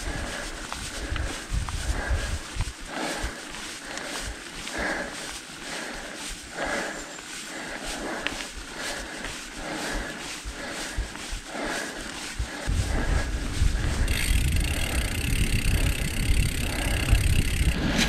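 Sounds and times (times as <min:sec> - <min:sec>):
wind buffeting microphone: 0:00.0 - 0:03.4, 0:09.9 - 0:18.0.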